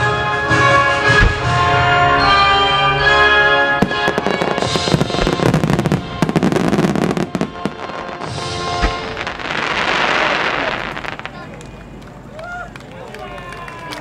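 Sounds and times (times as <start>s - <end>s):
fireworks bangs and crackles: 0.0s - 2.1s, 3.7s - 12.0s
crackling hiss of firework burst: 4.0s - 11.4s.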